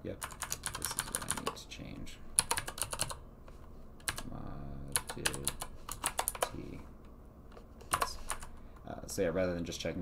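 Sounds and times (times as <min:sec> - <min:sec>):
typing on computer keyboard: 0:00.2 - 0:01.6, 0:02.4 - 0:03.2, 0:04.0 - 0:04.3, 0:04.9 - 0:06.6, 0:07.9 - 0:08.5.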